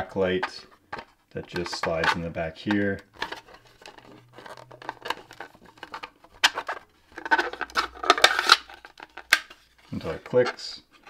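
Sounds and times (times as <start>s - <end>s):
circuit board scraping plastic: 0.4s - 11.0s.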